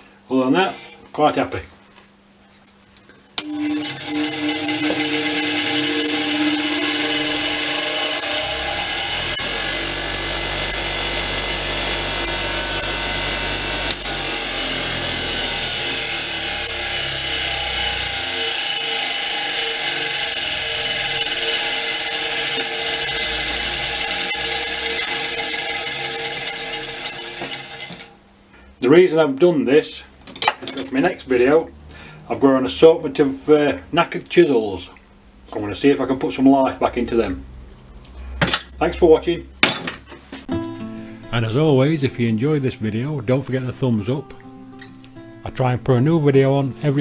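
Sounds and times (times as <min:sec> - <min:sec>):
bench grinder wire wheel whirring: 0:03.4 - 0:28.1.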